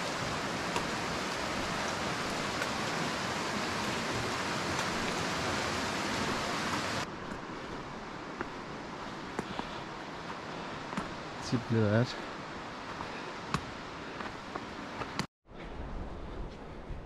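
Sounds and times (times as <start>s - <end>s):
flowing water rushing: 0.0s - 15.3s.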